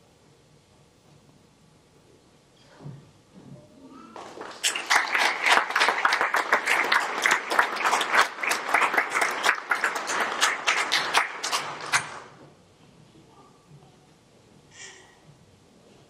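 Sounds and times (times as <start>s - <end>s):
audience applauding: 4.2s - 12.4s.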